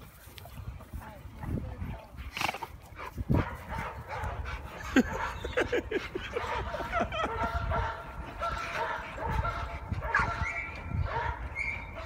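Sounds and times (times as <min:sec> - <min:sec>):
dogs yipping and barking: 0:03.3 - 0:12.0.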